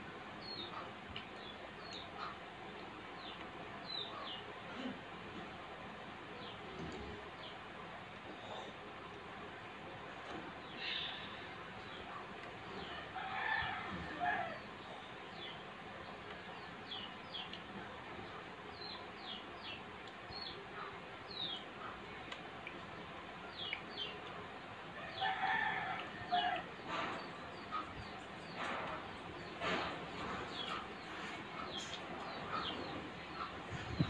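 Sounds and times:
small birds chirping: 0:00.4 - 0:04.9, 0:14.1 - 0:34.0
rooster crowing: 0:12.8 - 0:14.7, 0:25.0 - 0:26.6.

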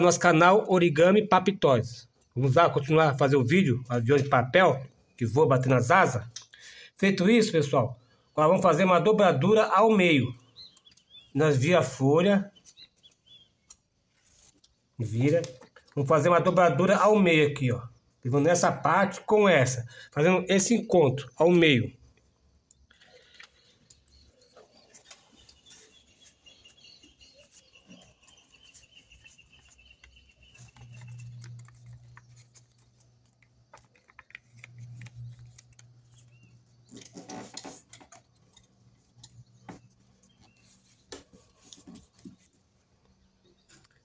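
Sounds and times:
paper rustling and creasing: 0:12.6 - 0:16.0, 0:22.9 - 0:44.0.

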